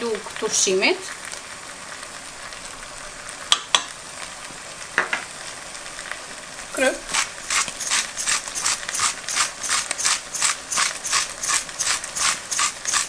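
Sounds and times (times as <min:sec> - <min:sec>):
food sizzling in pot: 0:00.0 - 0:13.0
utensil scraping pot: 0:07.0 - 0:13.0.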